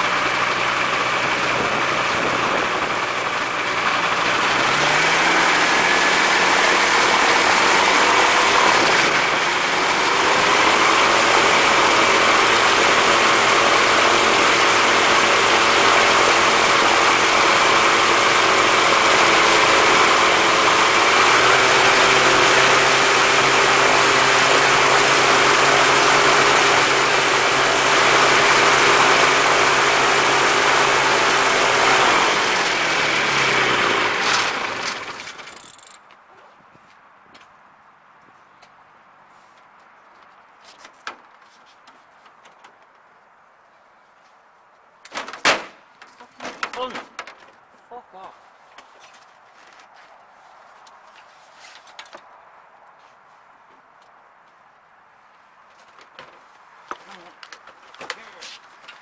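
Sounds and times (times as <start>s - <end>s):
propeller engine running at high power: 0.0s - 35.9s.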